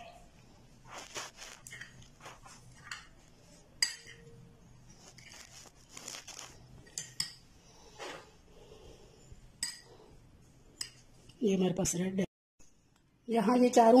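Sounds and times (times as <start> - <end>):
spoons scraping sticky food: 0.8 - 7.3
spoons clinking on glass bowls: 3.8 - 4.4.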